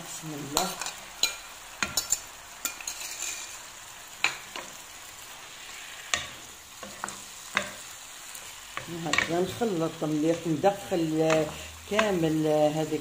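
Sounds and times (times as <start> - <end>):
pan sizzling: 0.0 - 13.0
wooden spatula stirring: 5.7 - 12.5.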